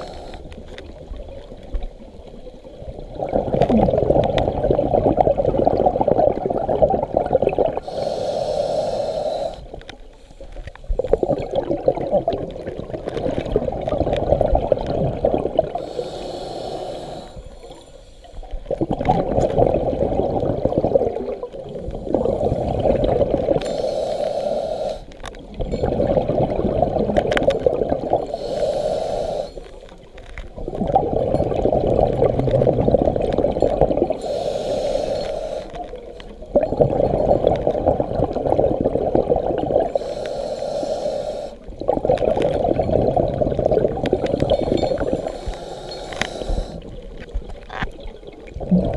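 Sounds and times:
regulator inhale hiss: 0.0s - 0.6s, 7.8s - 11.0s, 15.8s - 18.6s, 23.6s - 25.2s, 28.2s - 30.0s, 34.2s - 36.0s, 39.9s - 41.7s, 44.4s - 47.0s
exhaled bubbles rushing: 2.7s - 7.9s, 10.9s - 15.8s, 18.5s - 23.6s, 25.4s - 28.4s, 30.5s - 34.2s, 35.8s - 40.0s, 41.7s - 45.3s, 46.8s - 48.9s.

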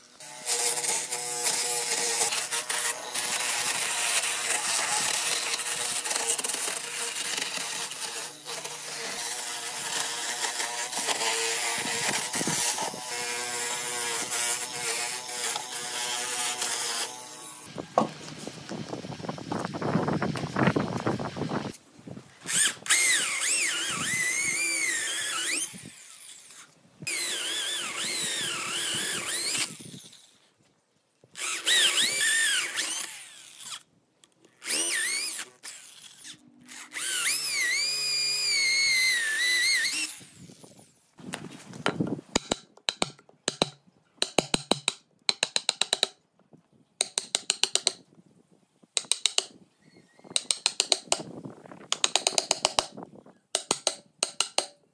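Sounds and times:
cordless drill boring into wood: 0.1s - 21.8s, 22.4s - 30.4s, 31.4s - 33.9s, 34.6s - 40.9s
chisel chopping wood: 41.8s - 46.2s, 47.0s - 48.0s, 49.0s - 49.6s, 50.4s - 51.3s, 51.9s - 53.0s, 53.6s - 54.8s.

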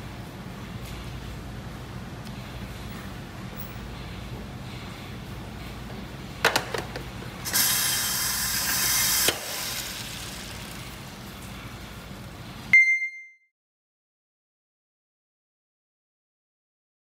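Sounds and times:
loud hiss of air: 7.4s - 10.9s.

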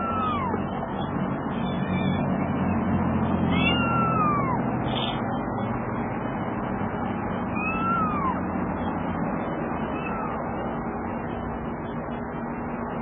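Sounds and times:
kitten meowing: 0.0s - 2.4s, 3.2s - 5.2s, 7.6s - 8.4s, 9.9s - 10.4s
steady background noise: 0.0s - 13.0s.

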